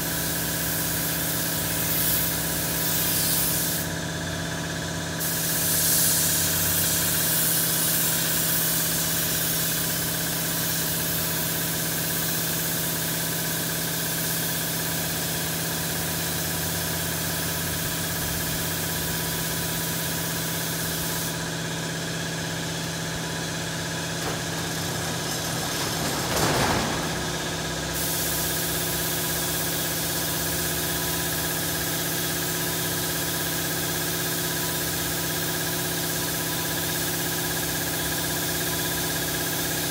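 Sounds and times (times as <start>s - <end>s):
air compressor humming: 0.0s - 32.4s
air spray gun hissing: 0.8s - 4.0s, 5.2s - 13.2s, 14.2s - 25.9s, 26.8s - 30.6s.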